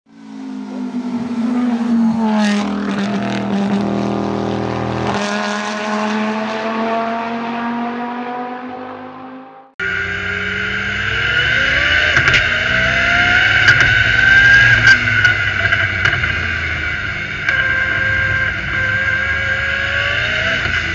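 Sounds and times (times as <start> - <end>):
low drone with gliding tones: 0.1 - 5.1, 9.8 - 20.9
race car engine and turbo whine: 0.1 - 20.9.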